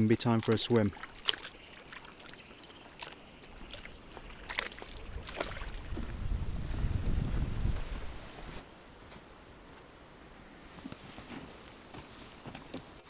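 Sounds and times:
waves lapping against rocks: 0:00.0 - 0:07.5.

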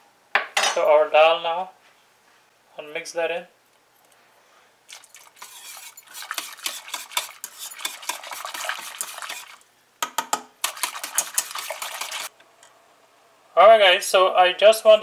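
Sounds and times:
metal spoon scraping pot: 0:04.9 - 0:09.6, 0:10.6 - 0:12.3.

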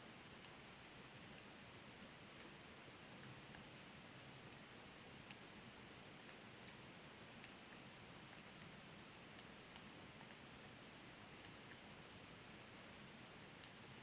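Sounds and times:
background hiss: 0:00.0 - 0:14.0
knitting needles clicking: 0:13.6 - 0:13.8.

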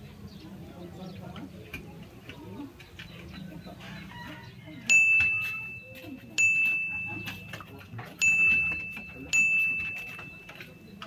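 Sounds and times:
bright electronic ding chimes: 0:04.9 - 0:07.6, 0:08.2 - 0:10.9.

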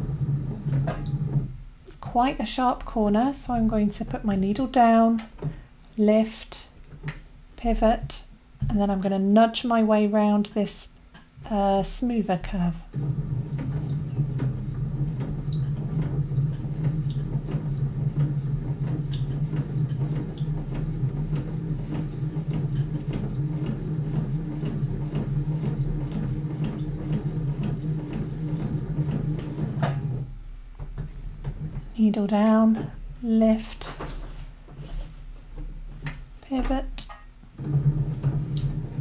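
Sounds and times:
sewing machine sewing: 0:12.8 - 0:30.3, 0:37.6 - 0:39.0.

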